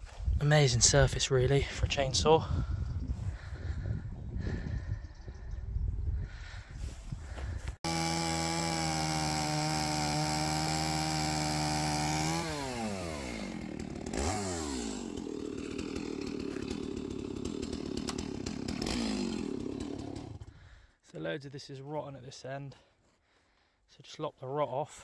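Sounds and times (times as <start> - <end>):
chainsaw engine revving and idling: 7.8 - 20.6.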